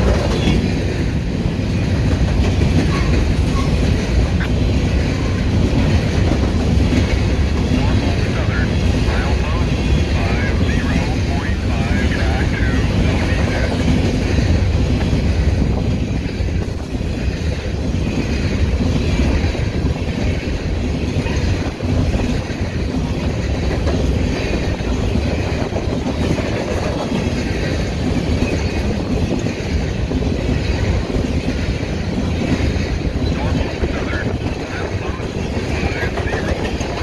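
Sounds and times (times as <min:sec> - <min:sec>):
freight train wheels rumbling on rails: 0:00.0 - 0:37.0.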